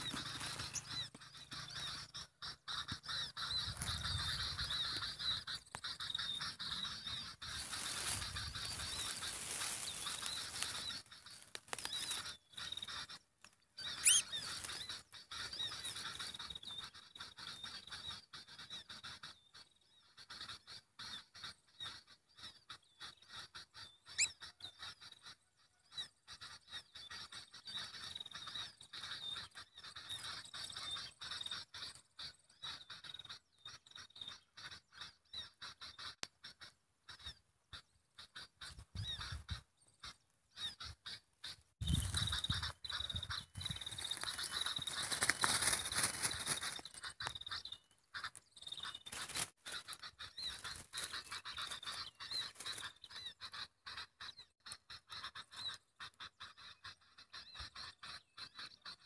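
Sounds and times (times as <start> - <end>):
bird fluttering rustling clicks: 44.2 - 47.3.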